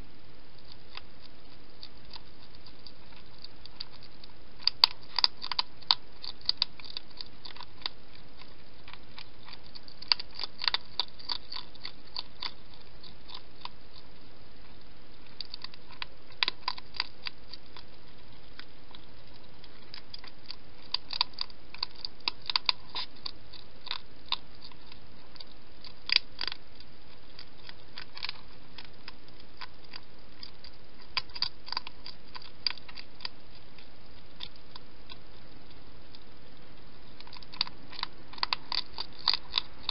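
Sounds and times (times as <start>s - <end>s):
hedgehog chewing food: 0.0s - 39.9s
steady hiss: 0.0s - 39.9s.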